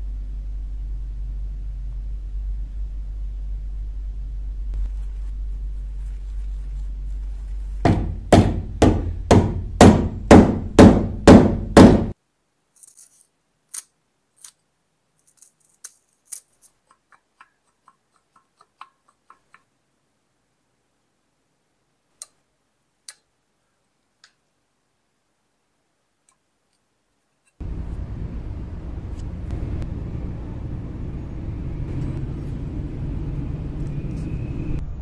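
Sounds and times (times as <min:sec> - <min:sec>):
heavy knocks: 0:07.9 - 0:12.2
low rumble: 0:27.6 - 0:35.0.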